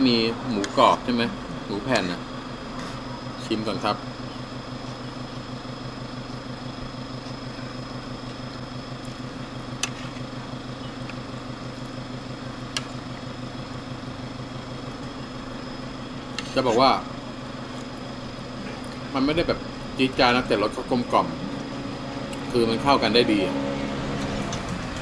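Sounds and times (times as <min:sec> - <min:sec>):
mechanical hum with high whine: 0:00.0 - 0:25.0.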